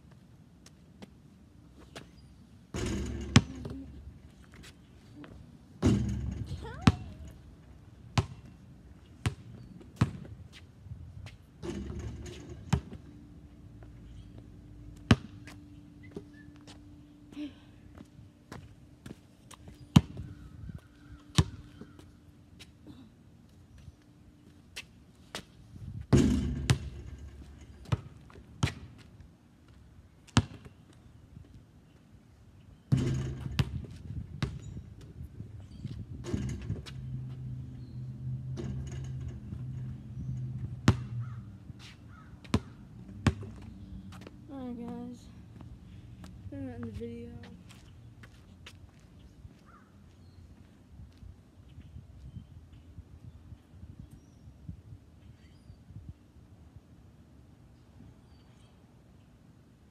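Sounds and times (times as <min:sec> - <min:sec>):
ball hitting rim and backboard: 0:02.7 - 0:03.8, 0:05.8 - 0:07.4, 0:11.6 - 0:13.0, 0:15.0 - 0:15.4, 0:21.3 - 0:21.9, 0:26.1 - 0:28.9, 0:32.9 - 0:34.7, 0:36.2 - 0:37.5, 0:38.4 - 0:41.4, 0:42.4 - 0:43.7
basketball bouncing on pavement: 0:02.7 - 0:03.9, 0:05.8 - 0:07.3, 0:08.1 - 0:08.5, 0:09.2 - 0:10.6, 0:11.2 - 0:13.0, 0:15.0 - 0:16.3, 0:19.9 - 0:22.1, 0:25.4 - 0:29.1, 0:30.3 - 0:30.7, 0:32.9 - 0:35.2, 0:38.4 - 0:45.2.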